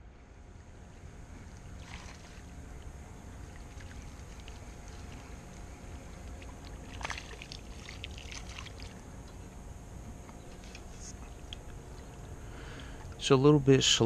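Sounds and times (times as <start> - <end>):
steady low rumble: 0.0 - 14.0
fish splashing at the surface: 1.8 - 2.5, 6.6 - 9.0.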